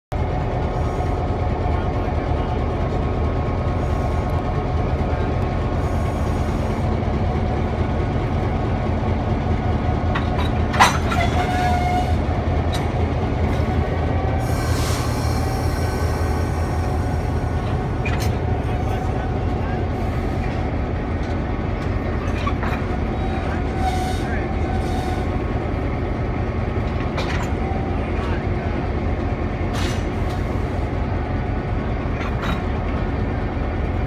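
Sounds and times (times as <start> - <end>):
heavy engine running: 0.1 - 34.0
metallic clank: 10.1 - 11.7.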